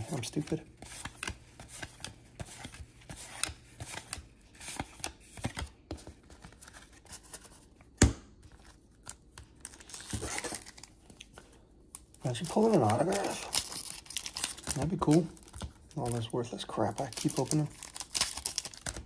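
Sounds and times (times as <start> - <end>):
cards and wrapper crinkling: 8.5 - 19.0.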